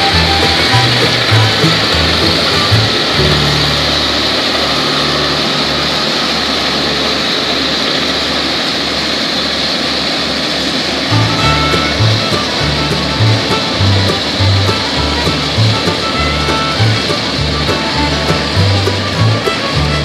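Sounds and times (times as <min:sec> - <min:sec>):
tractor engine running under load: 0:00.0 - 0:20.0
background music: 0:11.1 - 0:20.0.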